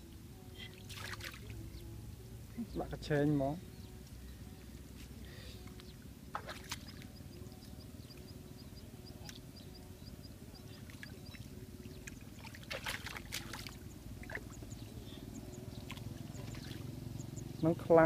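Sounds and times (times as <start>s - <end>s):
hands splashing in muddy water: 12.4s - 14.4s.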